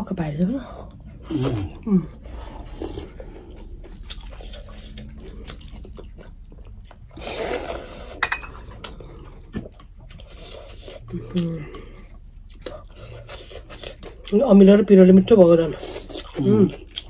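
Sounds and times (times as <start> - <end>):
chewing and smacking: 0.6 - 17.0
dishes clinking: 8.2 - 8.6.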